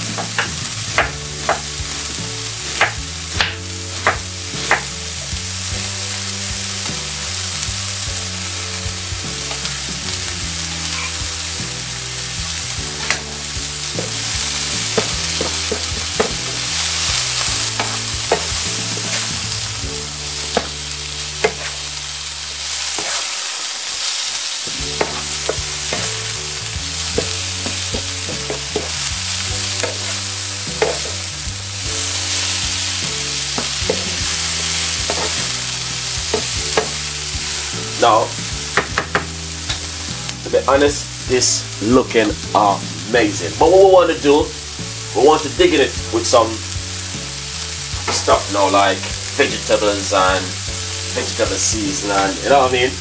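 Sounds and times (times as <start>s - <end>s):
vegetables sizzling in a frying pan: 0.0s - 53.0s
wooden spoon knocking against pan: 15.0s - 16.6s, 27.2s - 29.0s, 30.8s - 31.2s, 36.3s - 37.0s, 38.7s - 39.9s.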